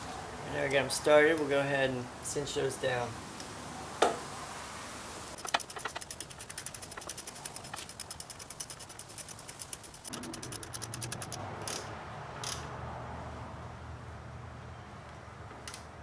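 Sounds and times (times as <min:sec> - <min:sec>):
hand ratchet clicking rapidly: 0:05.4 - 0:11.8.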